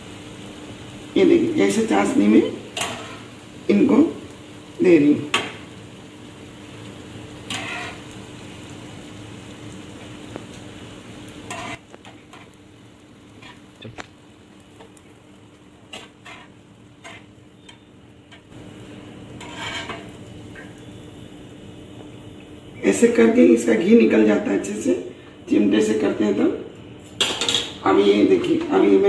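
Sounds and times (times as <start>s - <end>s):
oil sizzling deep-frying: 0.0s - 29.0s
utensils clinking on metal pans: 2.7s - 3.3s, 7.5s - 8.0s, 19.4s - 20.2s, 27.2s - 28.8s.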